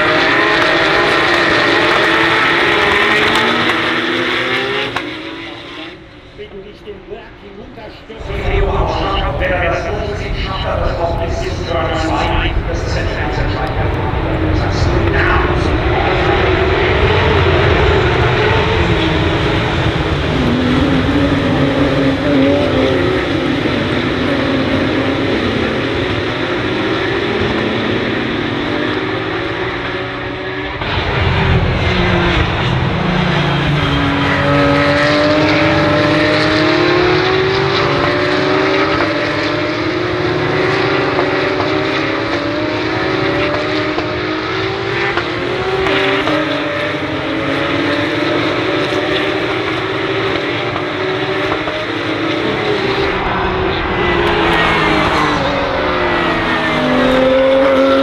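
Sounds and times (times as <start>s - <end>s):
race car engines running hard: 0.0s - 58.0s.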